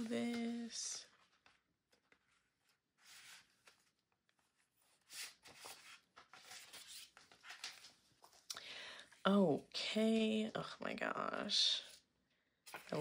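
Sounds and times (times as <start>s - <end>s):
paper pages rustling: 0.0s - 8.5s, 12.6s - 13.0s.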